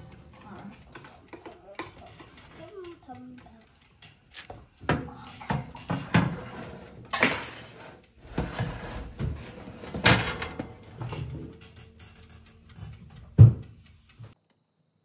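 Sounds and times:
kitchen items knocking and clattering: 0:04.4 - 0:12.0, 0:12.8 - 0:13.8.

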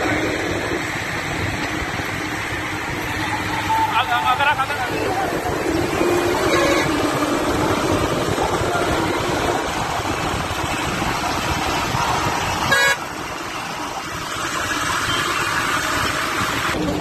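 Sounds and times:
vehicle engine and road noise: 0:00.0 - 0:17.0
car horn toot: 0:06.3 - 0:07.1, 0:12.6 - 0:13.0.

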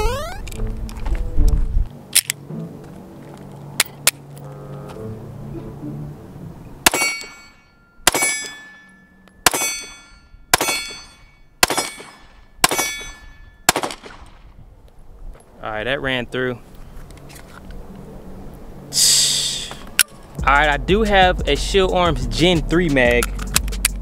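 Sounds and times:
pistol shots with metallic ring: 0:06.8 - 0:14.4.

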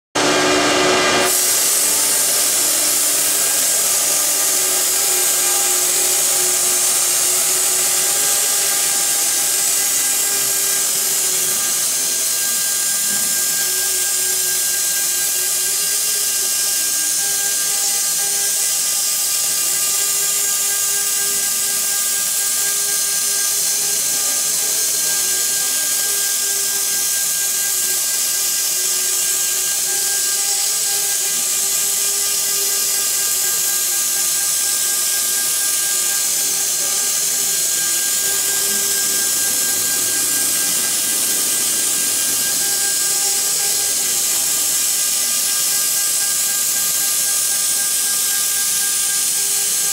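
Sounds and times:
router spindle hiss and whine: 0:00.2 - 0:49.9.

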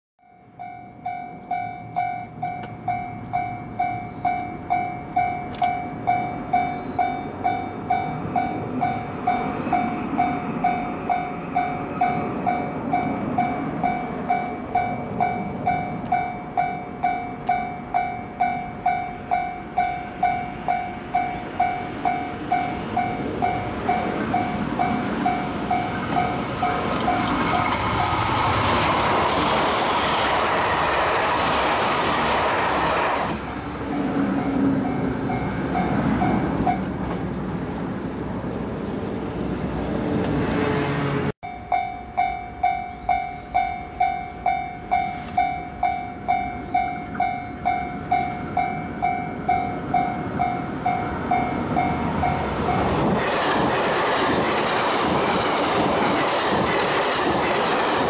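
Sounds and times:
level-crossing bell ringing: 0:00.2 - 0:28.3, 0:41.4 - 0:53.0
train passing: 0:00.4 - 0:58.0.

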